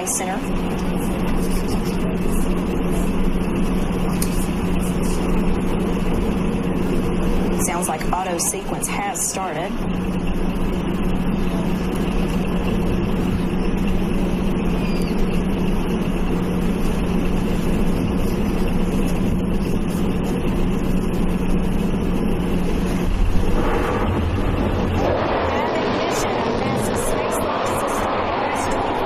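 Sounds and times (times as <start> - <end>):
rocket engine igniting: 21.8 - 29.0.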